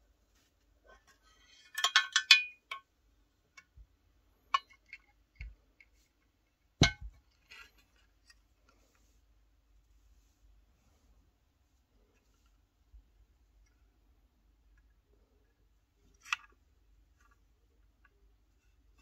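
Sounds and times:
metal pedal enclosure clinking: 1.6s - 2.8s.

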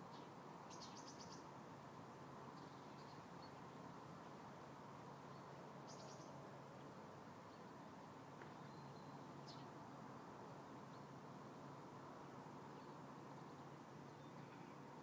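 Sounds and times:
faint hiss: 0.0s - 15.0s.

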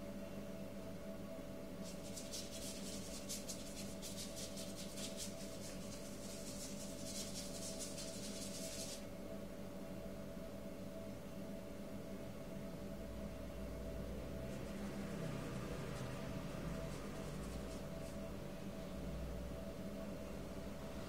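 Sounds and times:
steady low hum: 0.0s - 21.0s
painting tool scratching on paper: 1.8s - 9.1s, 15.9s - 18.2s.

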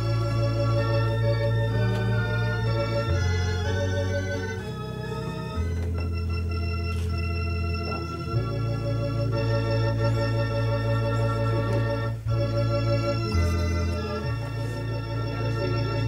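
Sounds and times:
organ playing slow chords: 0.0s - 16.0s.

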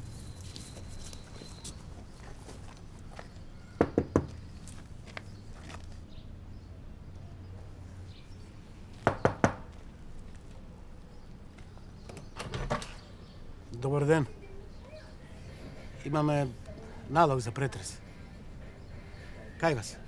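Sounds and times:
knocks on a window: 3.8s - 4.4s, 9.0s - 9.6s.

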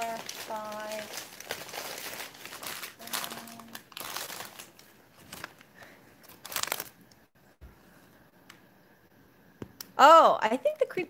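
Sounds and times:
paper bag crinkling: 0.0s - 7.0s.

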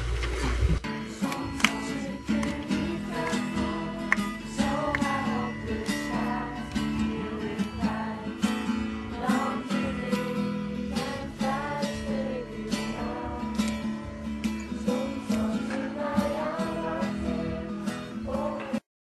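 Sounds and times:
strummed acoustic guitar: 0.0s - 18.8s
person singing: 0.9s - 18.8s.

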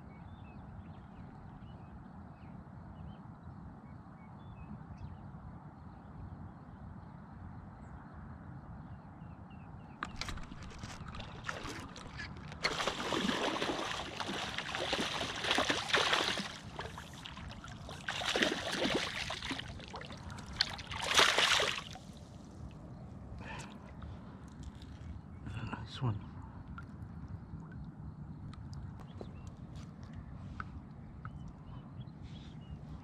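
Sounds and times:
water splashing and sloshing: 10.0s - 25.1s.

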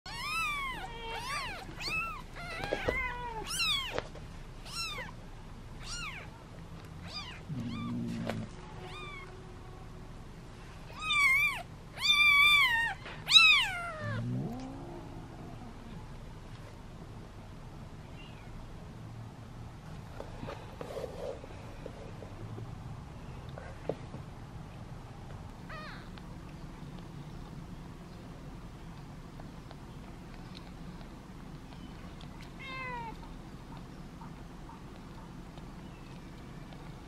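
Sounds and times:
kittens mewing: 0.1s - 4.0s, 4.6s - 5.2s, 5.8s - 6.3s, 7.0s - 9.3s, 10.9s - 15.9s, 25.6s - 26.3s, 30.4s - 36.9s.

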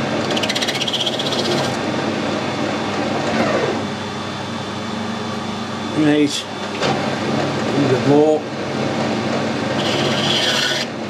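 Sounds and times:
steady hum: 0.0s - 11.0s
lathe tool cutting buzz: 9.7s - 10.9s.

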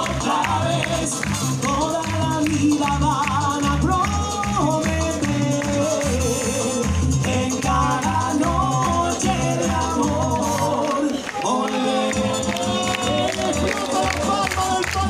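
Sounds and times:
bass drum snare and cymbals beat: 0.0s - 10.8s, 12.2s - 15.0s
chorus singing held notes: 7.2s - 14.8s.

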